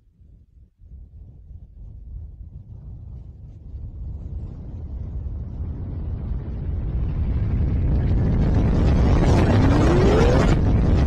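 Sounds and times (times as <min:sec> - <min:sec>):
explosion rumble: 0:04.9 - 0:11.0.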